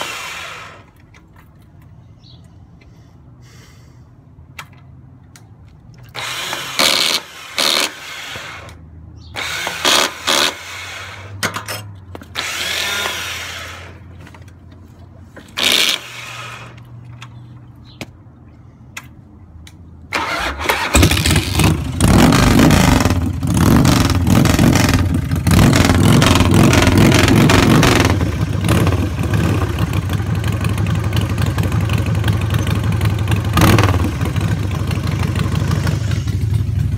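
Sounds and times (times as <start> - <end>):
motorcycle starter cranking: 20.1 - 29.0
motorcycle engine running: 21.0 - 36.9.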